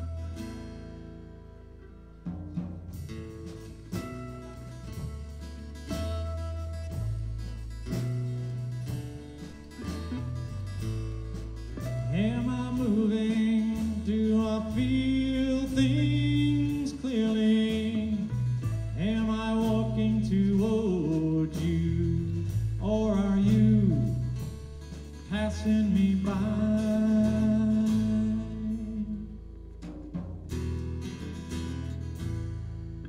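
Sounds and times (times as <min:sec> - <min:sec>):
rock band playing: 0:00.0 - 0:33.0
man singing: 0:12.0 - 0:24.5, 0:25.2 - 0:29.4.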